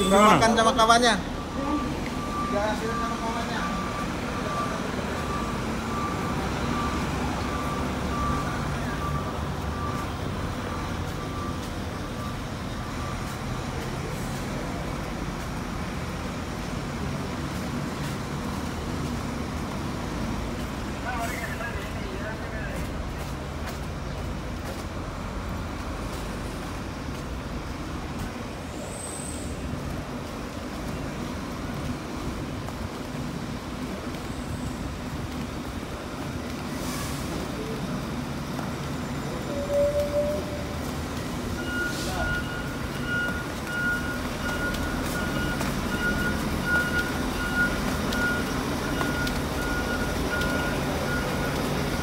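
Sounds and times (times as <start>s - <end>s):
reversing alarm beeping: 0.0s - 14.4s, 41.4s - 52.0s
bus engines idling: 0.0s - 52.0s.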